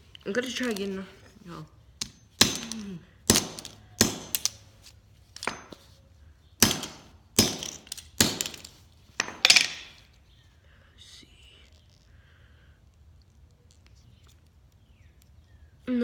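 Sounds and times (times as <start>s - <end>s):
hammer striking toy car: 2.0s - 4.6s.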